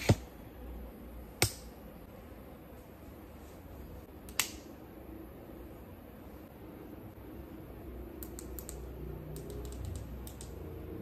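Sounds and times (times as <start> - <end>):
faint room hum: 0.0 - 11.0
sharp clicks: 8.2 - 10.6.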